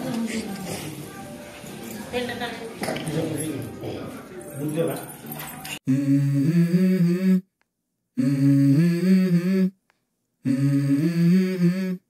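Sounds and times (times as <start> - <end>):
hummed melody: 8.2 - 9.8, 10.5 - 12.0.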